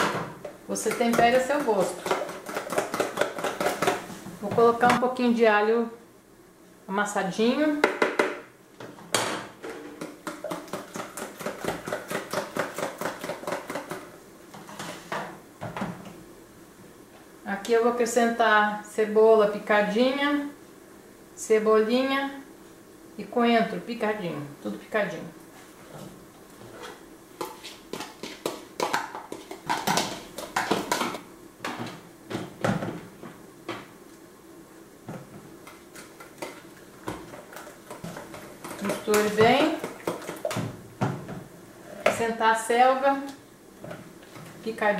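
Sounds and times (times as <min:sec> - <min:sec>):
spoon beating eggs in a bowl: 0:00.8 - 0:04.1, 0:10.0 - 0:14.1, 0:27.4 - 0:31.2, 0:35.6 - 0:40.6.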